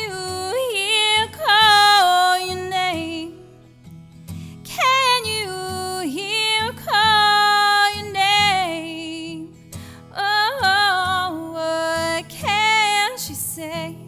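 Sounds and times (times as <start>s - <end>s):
woman singing: 0.0s - 3.8s, 4.5s - 14.0s
acoustic guitar: 0.0s - 14.0s.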